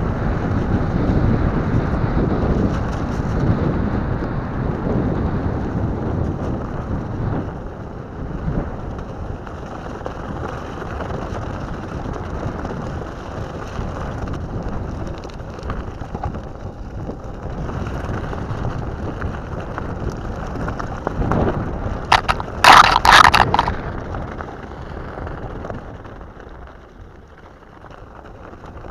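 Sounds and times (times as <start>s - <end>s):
tyres rolling over gravel: 5.9s - 28.9s
branches scratching camera: 22.1s - 23.8s.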